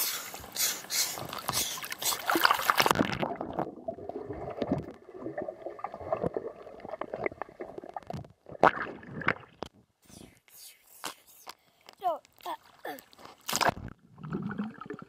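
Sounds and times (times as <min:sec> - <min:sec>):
water splashing: 0:00.2 - 0:09.6, 0:12.2 - 0:15.0
underwater gurgling and bubbling: 0:02.2 - 0:09.6, 0:13.7 - 0:15.0
small knocks underwater: 0:04.4 - 0:09.8.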